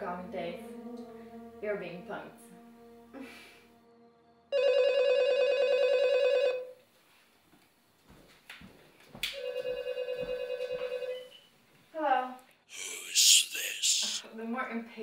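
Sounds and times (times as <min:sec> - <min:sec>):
telephone ringing: 0:04.6 - 0:06.7, 0:09.4 - 0:11.3.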